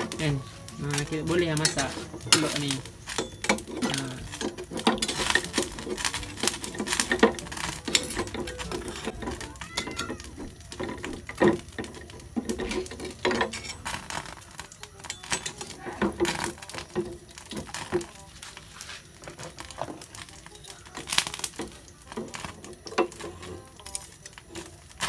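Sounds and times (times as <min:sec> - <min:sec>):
spatula scraping metal: 0:00.0 - 0:18.0.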